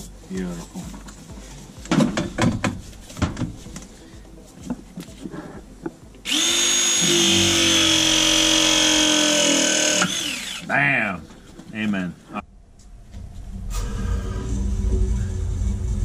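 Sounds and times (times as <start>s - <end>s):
press tool motor whine: 6.2s - 10.7s.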